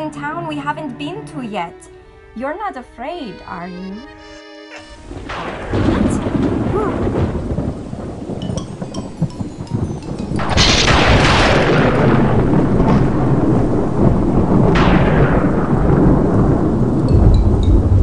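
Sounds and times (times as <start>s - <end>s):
steady rain: 5.0s - 18.0s
thunderclap rumbling: 5.0s - 18.0s.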